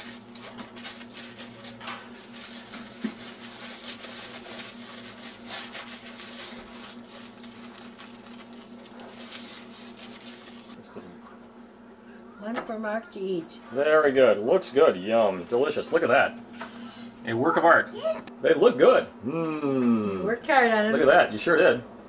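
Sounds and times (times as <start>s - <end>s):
paper wrapper rustling and scraping: 0.0s - 10.8s.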